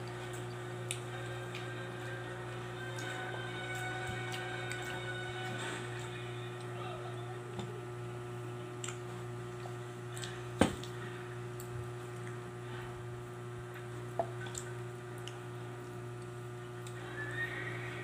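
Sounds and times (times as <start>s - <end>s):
low electrical hum: 0.0s - 18.0s.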